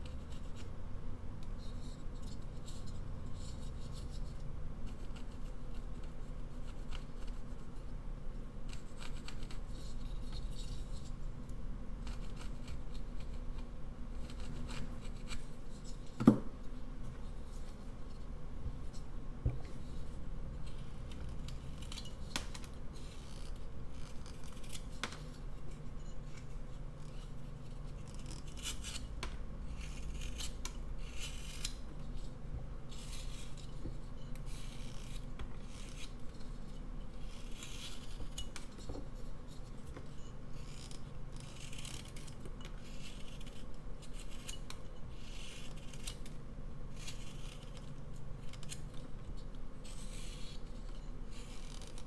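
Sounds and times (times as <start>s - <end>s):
carving knife cutting wood: 8.7s - 11.2s, 12.0s - 16.4s, 20.6s - 25.4s, 27.0s - 29.1s, 29.7s - 32.2s, 32.9s - 36.3s, 37.2s - 38.8s, 39.6s - 46.3s, 46.9s - 48.9s, 49.8s - 52.0s.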